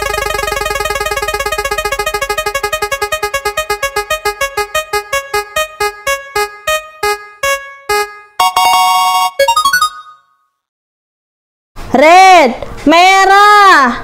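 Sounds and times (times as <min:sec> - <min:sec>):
electronic ticking notes: 0:00.0 - 0:10.3.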